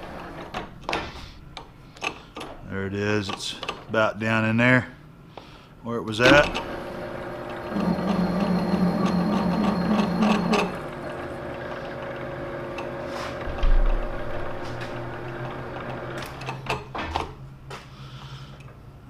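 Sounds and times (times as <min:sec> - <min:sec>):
metal lathe humming: 0:06.5 - 0:16.4.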